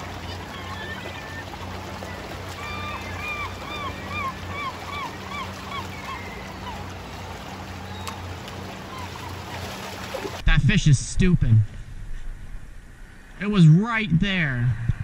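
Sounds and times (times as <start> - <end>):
gulls calling: 0.0 - 10.5
water noise: 0.0 - 15.0
gull yelping calls: 0.2 - 7.0, 8.8 - 9.5.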